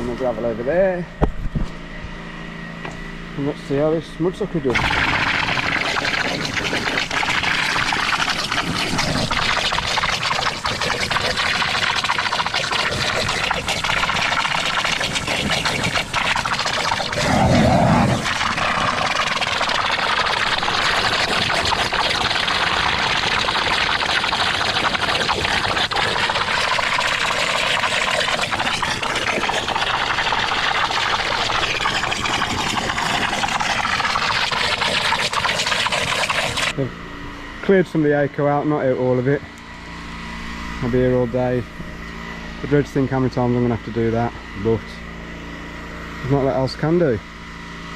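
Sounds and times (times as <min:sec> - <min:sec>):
suction hose rushing water: 0:04.7 - 0:36.8.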